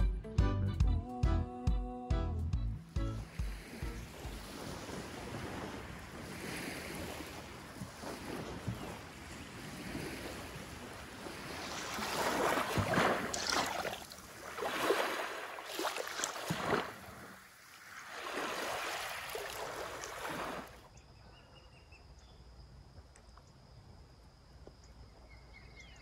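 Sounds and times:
small waves washing on sand: 3.3s - 20.9s.

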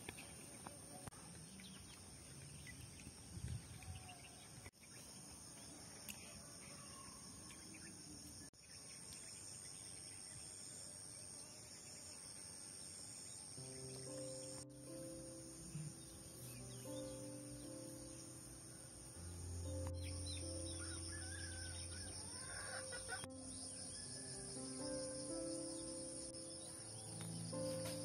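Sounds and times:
soft music: 13.4s - 28.0s.

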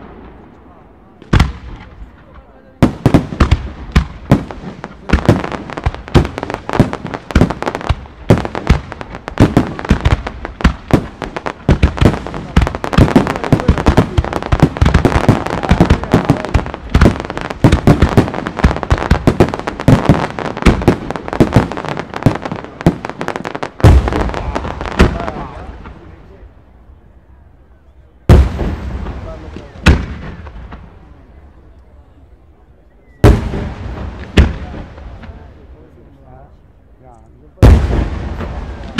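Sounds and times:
fireworks bursting: 0.0s - 26.5s, 28.2s - 31.4s, 33.1s - 35.8s, 37.6s - 38.9s
fireworks crackle: 1.3s - 26.4s.

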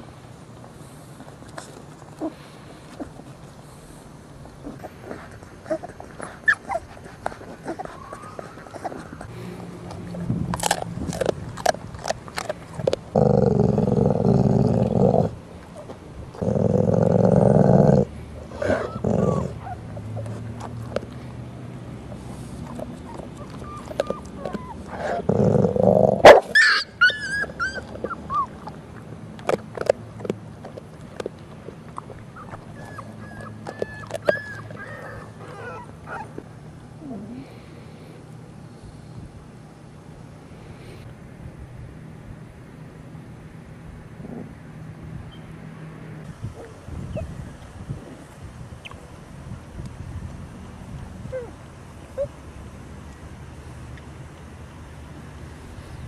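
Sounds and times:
chewing clicks: 4.5s - 25.8s, 27.4s - 35.3s
puppy whimpers: 4.6s - 9.3s, 18.6s - 20.9s, 22.6s - 25.8s, 26.5s - 28.8s, 32.3s - 36.3s, 51.3s - 52.3s
dog growling low: 4.6s - 36.4s, 37.0s - 37.7s, 44.2s - 44.6s.

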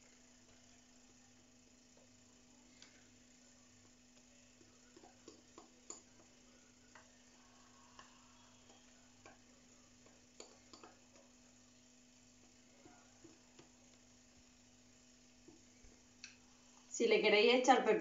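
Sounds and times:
low steady hum: 0.0s - 18.0s
utensil tapping mixing bowl: 3.8s - 11.5s, 12.4s - 14.1s.

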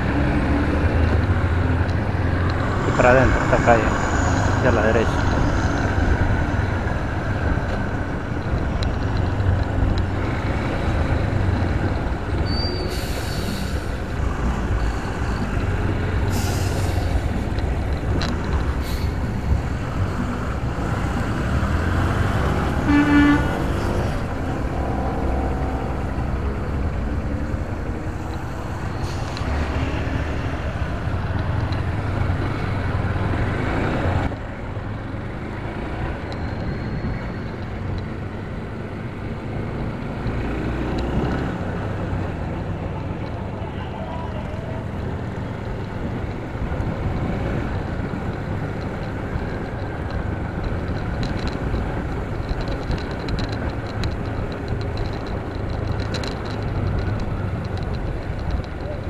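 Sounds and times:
wind rumble: 0.0s - 59.0s
vehicle horn toot: 22.8s - 24.0s.

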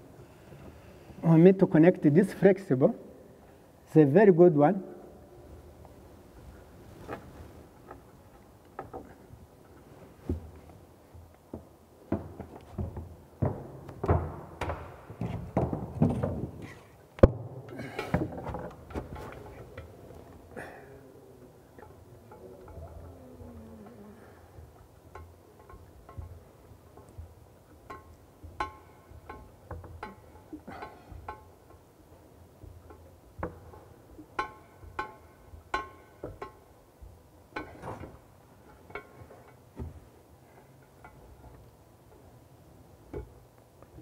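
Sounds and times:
faint handling noises: 5.5s - 14.0s, 17.9s - 44.0s
plumbing fittings clinking on ceramic: 24.9s - 31.9s, 32.6s - 36.7s.

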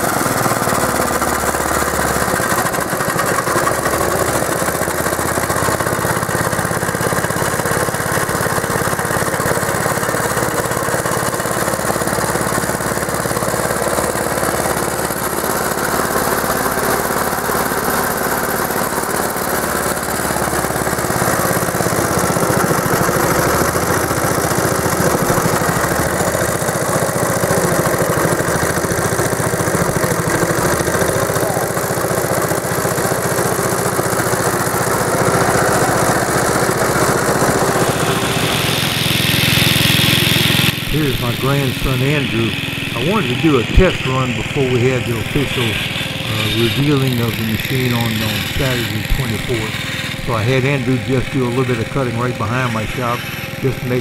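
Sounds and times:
lawnmower engine running: 0.0s - 54.0s.

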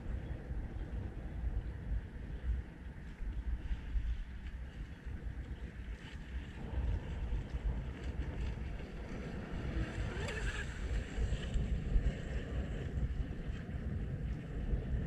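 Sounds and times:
wind buffeting microphone: 0.0s - 15.0s
rc boat motor whine: 6.6s - 12.9s.

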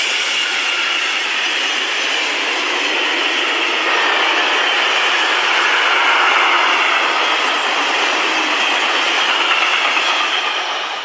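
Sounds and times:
freight train wagons rolling past: 0.0s - 11.0s.

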